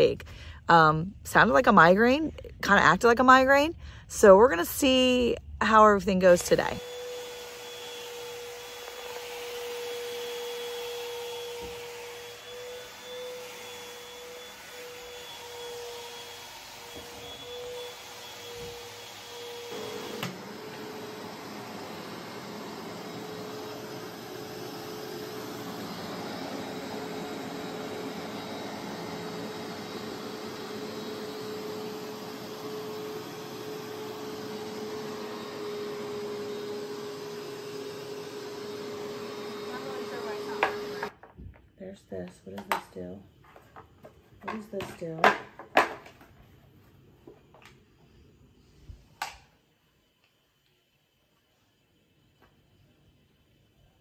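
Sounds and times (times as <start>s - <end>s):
vacuum cleaner motor running: 6.2s - 41.2s.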